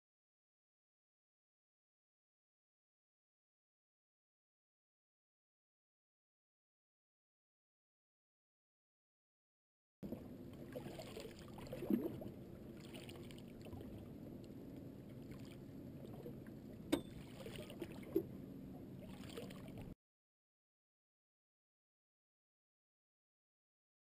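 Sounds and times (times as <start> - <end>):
water lapping against boat: 10.0 - 20.0.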